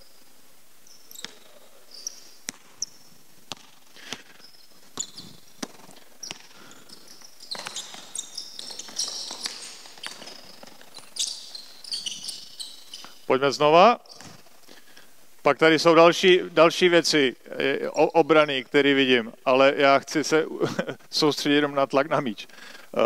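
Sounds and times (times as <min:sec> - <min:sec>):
sneaker squeaks on floor: 0:00.8 - 0:13.3, 0:14.0 - 0:14.6
basketball bouncing on hardwood: 0:03.5 - 0:04.2, 0:04.9 - 0:11.1.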